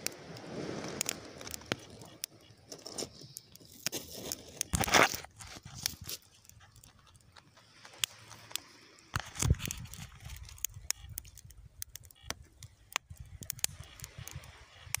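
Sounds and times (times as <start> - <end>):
campfire crackling and popping: 0.0 - 15.0
low wind rumble on microphone: 9.1 - 15.0.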